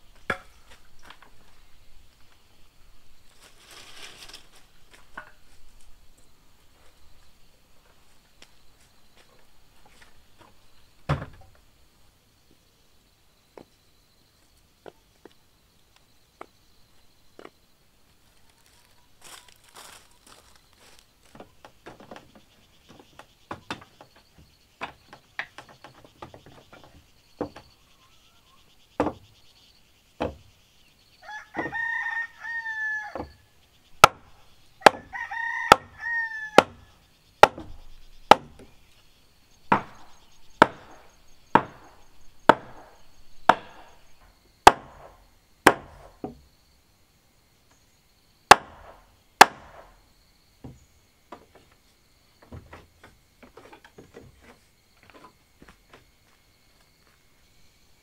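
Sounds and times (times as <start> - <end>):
rooster crowing: 31.2 - 33.4, 34.8 - 36.9
machete chopping into wooden post: 34.0 - 35.1, 37.4 - 38.7, 39.7 - 41.9, 42.5 - 44.0, 44.6 - 46.4, 48.5 - 49.9.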